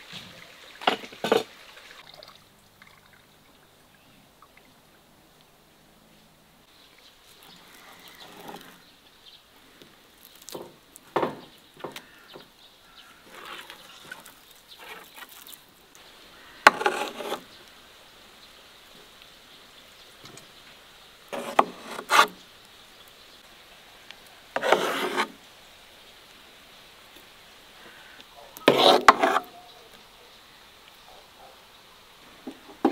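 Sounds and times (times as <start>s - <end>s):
metal spoon scraping metal pan: 16.7s - 17.4s, 24.6s - 25.4s, 28.7s - 29.5s.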